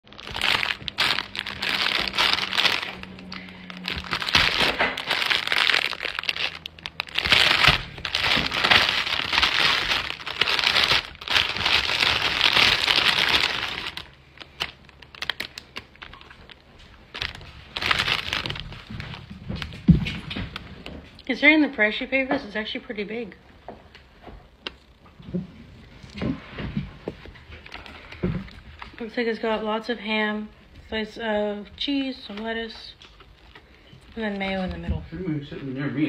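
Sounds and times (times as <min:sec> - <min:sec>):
plastic wrap crinkling: 0:00.0 - 0:21.3, 0:32.3 - 0:34.8.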